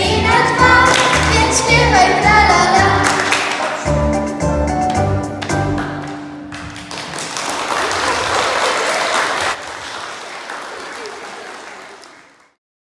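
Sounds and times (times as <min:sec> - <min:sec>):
audience clapping: 0:00.8 - 0:01.6, 0:03.0 - 0:04.0, 0:04.8 - 0:12.6.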